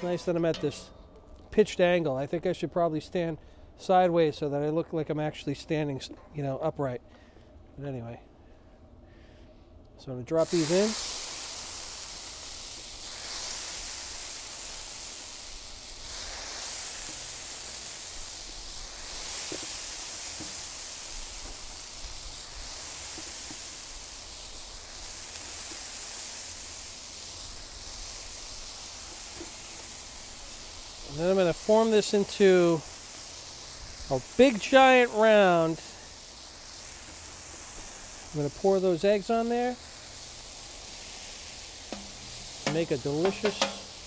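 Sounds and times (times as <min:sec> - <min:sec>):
noodles sizzling in oil: 0:10.4 - 0:44.0.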